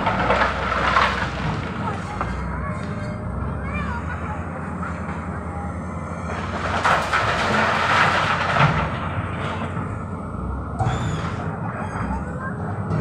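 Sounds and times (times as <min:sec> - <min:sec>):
rock and gravel dumped: 0:00.0 - 0:02.4, 0:06.3 - 0:10.0
excavator diesel engine running: 0:00.0 - 0:13.0.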